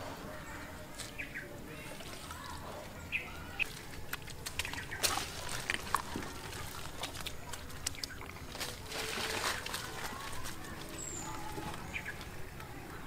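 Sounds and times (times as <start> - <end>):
hands slapping through mud and water: 3.6 - 12.6.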